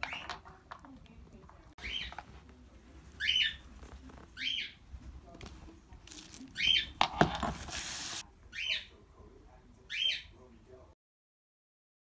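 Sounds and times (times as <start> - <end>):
bubble wrap crinkling: 6.0 - 8.2.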